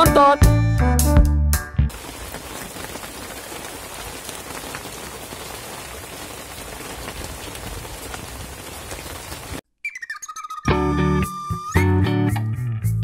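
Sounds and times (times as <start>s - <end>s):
rain falling on water: 1.9s - 9.6s.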